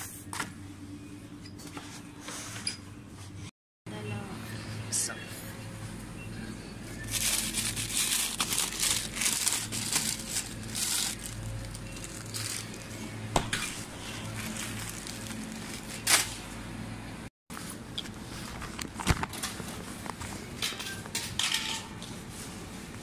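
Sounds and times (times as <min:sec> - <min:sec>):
plastic packaging crinkling: 0:07.0 - 0:13.0, 0:13.7 - 0:16.4.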